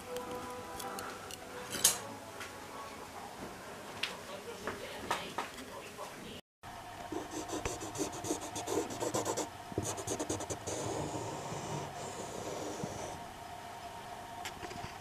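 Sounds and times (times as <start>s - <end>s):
pen tool scratching on wood: 7.2s - 13.2s.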